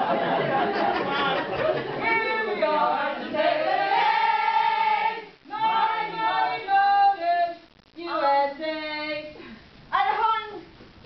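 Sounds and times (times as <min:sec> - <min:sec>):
group of people singing in unison: 0:00.0 - 0:08.6.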